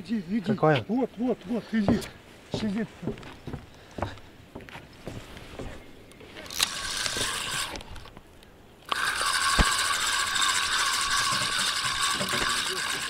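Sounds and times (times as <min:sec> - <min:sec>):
fishing reel being cranked: 0:06.4 - 0:08.1, 0:08.9 - 0:13.0.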